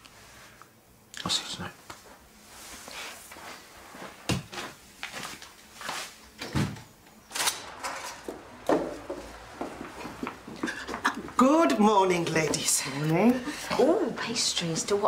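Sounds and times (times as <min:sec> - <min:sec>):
door shutting: 0:06.4 - 0:09.1.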